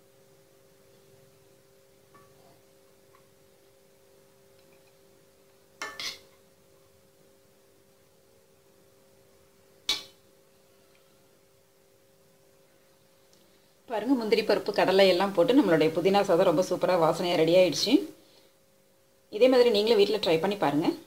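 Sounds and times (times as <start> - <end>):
faint steady hum: 0.0 - 21.0
plate clinking on stovetop: 5.8 - 6.3.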